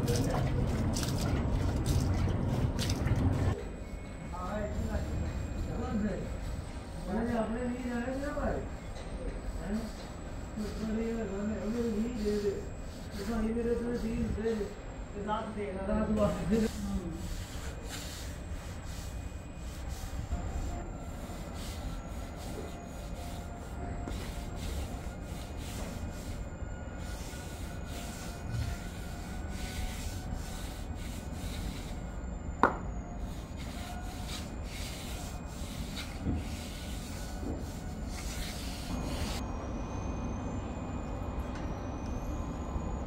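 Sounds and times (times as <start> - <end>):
trowel scraping damp sand: 33.2 - 39.4.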